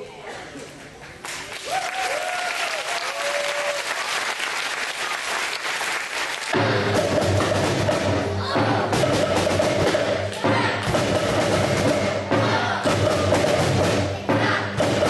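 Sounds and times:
audience clapping: 1.2s - 6.6s
children playing drums: 4.0s - 15.0s.

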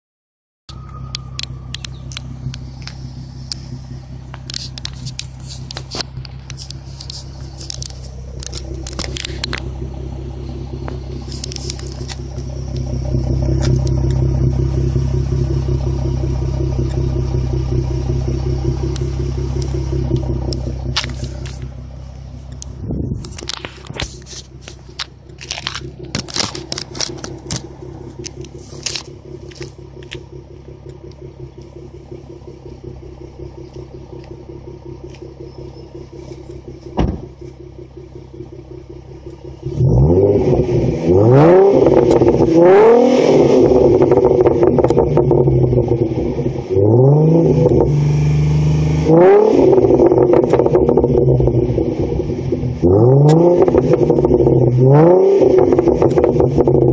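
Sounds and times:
car engine idling: 0.7s - 56.9s
phone handling clicks and scrapes: 4.4s - 9.7s, 23.2s - 30.2s.

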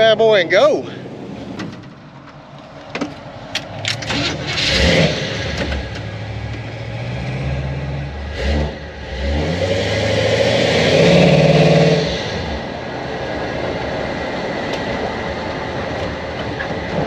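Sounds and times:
car engine starting and running: 0.0s - 17.0s
engine revving: 3.8s - 12.8s.

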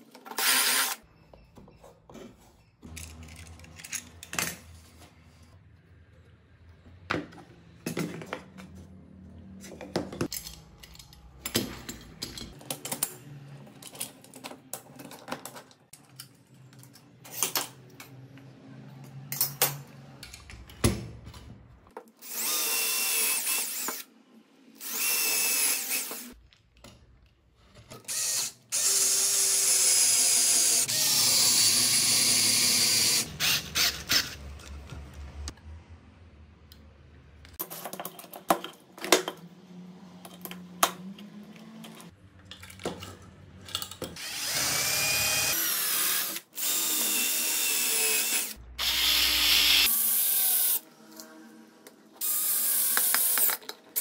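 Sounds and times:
power drill whining: 0.4s - 1.0s, 22.2s - 24.0s, 24.8s - 26.4s, 28.1s - 34.4s, 44.2s - 50.8s.

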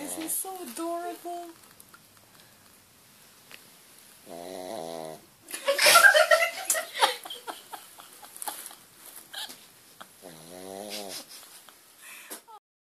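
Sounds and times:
dog snoring: 4.2s - 5.3s, 10.2s - 11.3s.

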